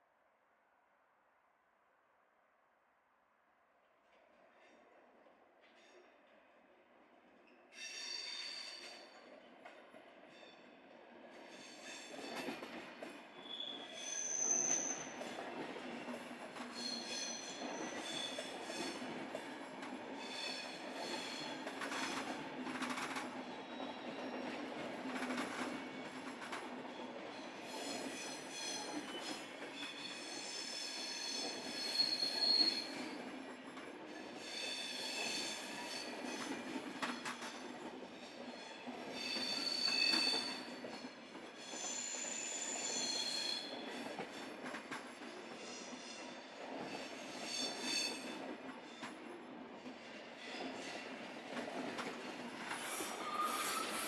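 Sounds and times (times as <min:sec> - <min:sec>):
train wheels squealing on rails: 0:05.6 - 0:06.1, 0:07.4 - 0:09.5, 0:10.2 - 0:54.0
train running hum: 0:43.6 - 0:54.0.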